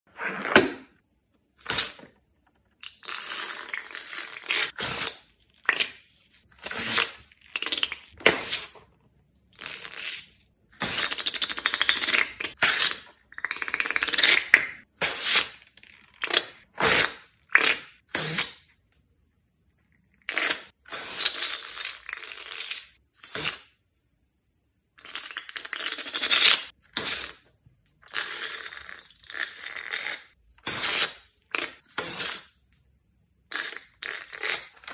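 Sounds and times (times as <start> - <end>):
slime squeezing out of balloons: 1.6 - 2.2, 2.8 - 8.9, 9.5 - 18.7, 20.2 - 23.8, 28.0 - 32.6, 33.4 - 34.9.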